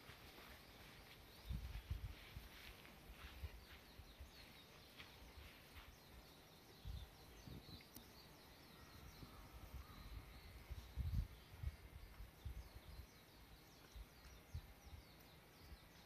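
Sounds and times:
soft low thumps: 0.0 - 7.8
distant birds chirping: 0.0 - 16.0.

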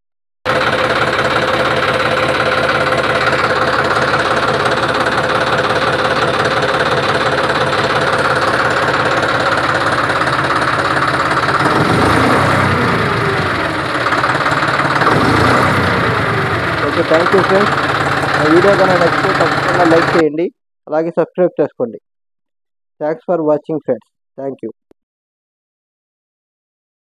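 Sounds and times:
tractor diesel engine idling: 0.5 - 20.3.

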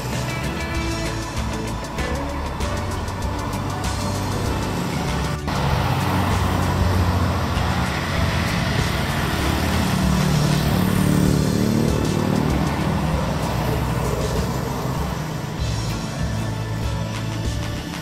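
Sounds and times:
background music: 0.0 - 18.0
vehicle passing on road: 0.0 - 18.0.

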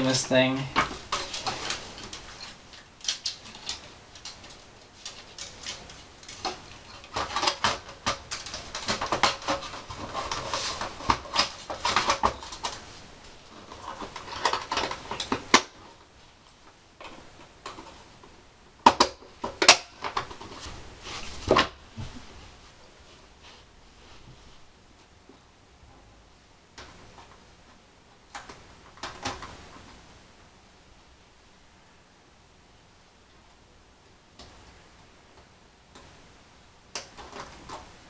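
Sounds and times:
plastic parts clicking: 0.8 - 12.8.

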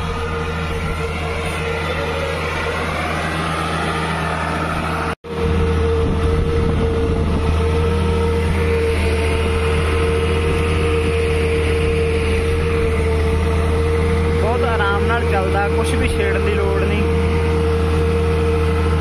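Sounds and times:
steady whine: 0.0 - 19.0
tractor diesel engine running: 0.0 - 19.0.

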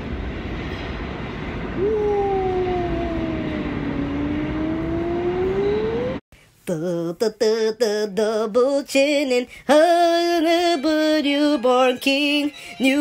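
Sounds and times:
subway train rumble: 0.0 - 6.2
electric motor whine: 3.0 - 6.2.

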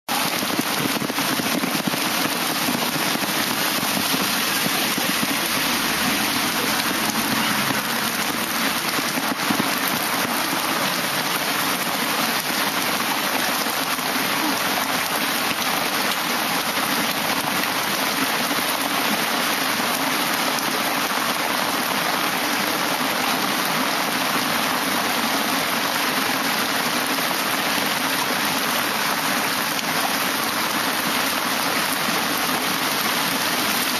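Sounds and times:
water splashing: 0.1 - 14.6
heavy rain on pavement: 0.1 - 33.9.

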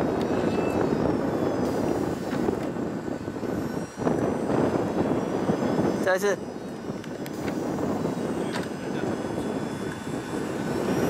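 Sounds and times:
model jet engine running: 0.0 - 11.0.

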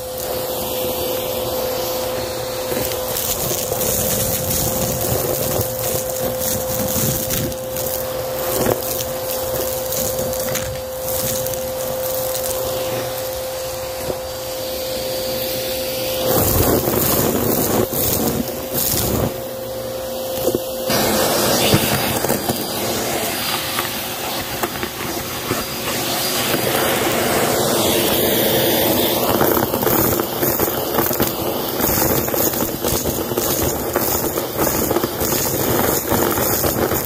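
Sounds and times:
vacuum cleaner whine: 0.0 - 37.0
debris crackling and rattling: 2.6 - 14.2, 29.3 - 37.0.

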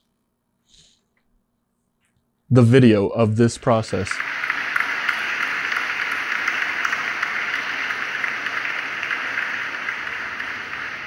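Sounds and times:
audience applause: 3.6 - 11.0.

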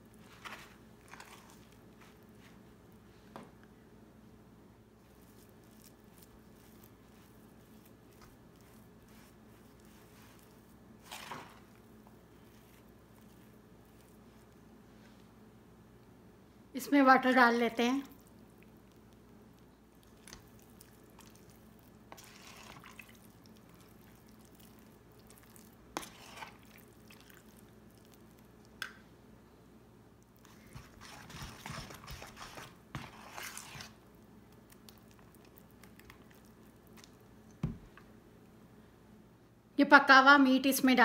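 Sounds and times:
spoon stirring thick batter: 0.0 - 3.0, 5.0 - 15.4, 18.0 - 29.0, 30.2 - 37.7.

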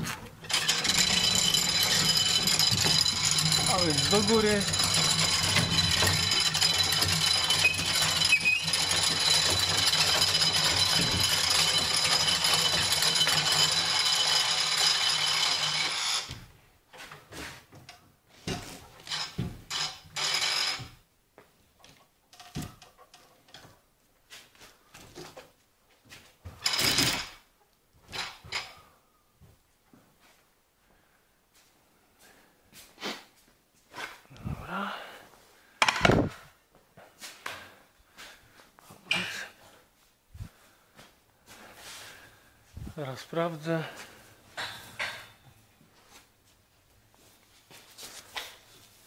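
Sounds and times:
knocks and clatter: 0.0 - 16.4
winch mechanical noise: 0.4 - 16.3.

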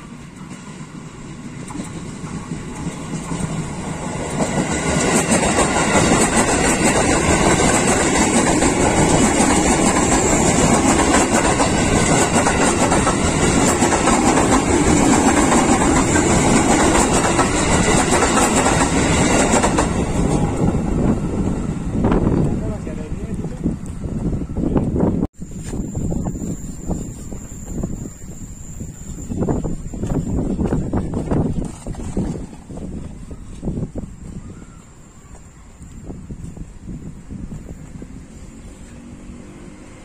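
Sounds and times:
train wheels clacking over rail joints: 0.4 - 20.6.

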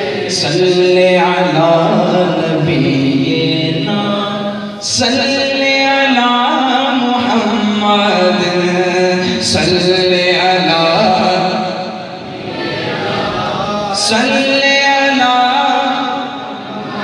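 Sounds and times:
man chanting into a microphone: 0.0 - 12.4, 13.1 - 17.0.

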